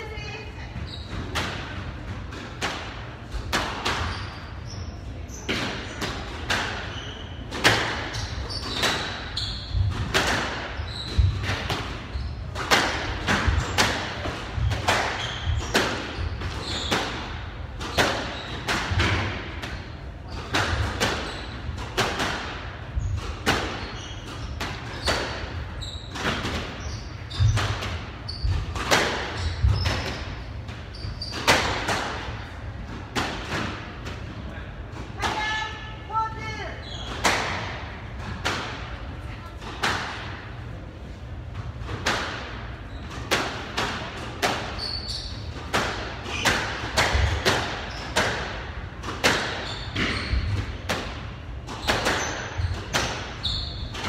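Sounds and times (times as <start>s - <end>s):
shoes squeaking on wooden floor: 0.6s - 1.3s, 14.6s - 17.0s, 23.8s - 30.2s, 49.6s - 50.6s, 52.2s - 54.0s
squash ball hits: 1.2s - 4.2s, 5.4s - 34.2s, 37.1s - 38.9s, 41.8s - 54.0s.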